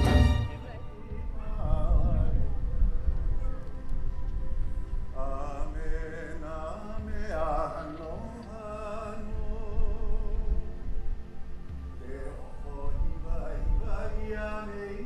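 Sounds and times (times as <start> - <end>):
low rumble: 0.0 - 11.2.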